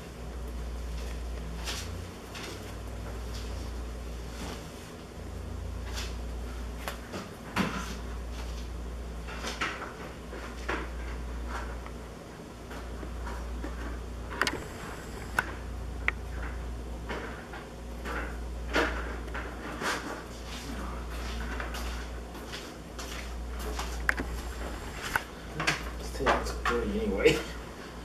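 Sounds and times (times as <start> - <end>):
steady low hum: 10.2 - 28.0.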